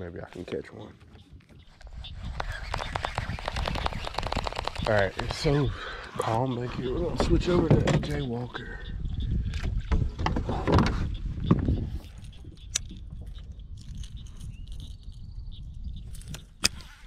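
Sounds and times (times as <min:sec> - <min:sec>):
fishing tackle clicks and rattles: 0:12.0 - 0:15.3.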